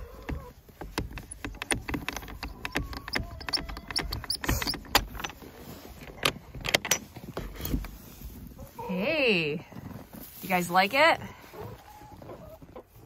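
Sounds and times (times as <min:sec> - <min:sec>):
door scraping: 0:02.2 - 0:07.9
metal bolt latch clicking: 0:06.1 - 0:07.0.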